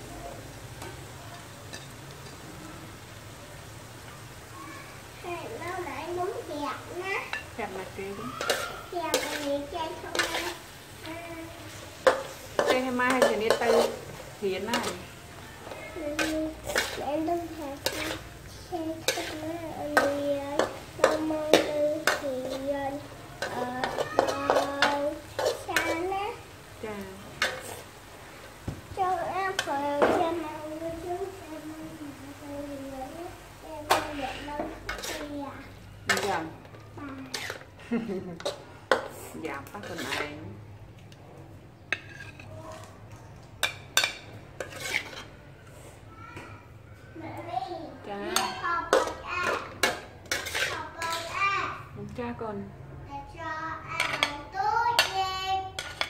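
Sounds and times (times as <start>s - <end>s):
child's high voice: 4.5s - 7.4s, 8.1s - 11.7s, 15.5s - 26.4s, 29.0s - 35.7s, 46.0s - 50.0s, 50.7s - 52.0s, 53.1s - 55.9s
metal spatula scraping wok: 6.8s - 27.9s, 33.8s - 37.8s, 38.4s - 40.6s, 41.9s - 42.9s, 43.6s - 45.5s, 48.3s - 51.5s, 54.0s - 56.0s.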